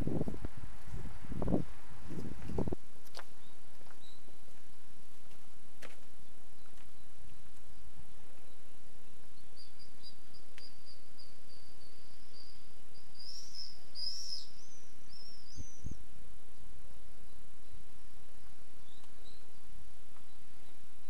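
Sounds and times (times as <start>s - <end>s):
small bird singing: 3.3s - 4.4s, 8.1s - 21.0s.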